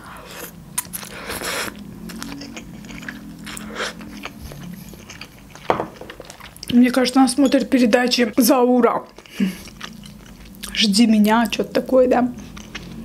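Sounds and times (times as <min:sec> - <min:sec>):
low hum through closed lips: 0:00.0 - 0:06.7
wet chewing: 0:00.3 - 0:07.0, 0:09.0 - 0:11.6, 0:12.4 - 0:13.0.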